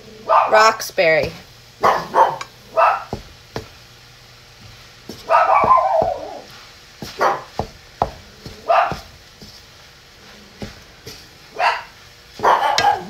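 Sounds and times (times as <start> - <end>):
dogs barking: 0.2 - 0.7, 1.8 - 3.2, 5.2 - 7.6, 8.6 - 9.1, 11.5 - 13.0.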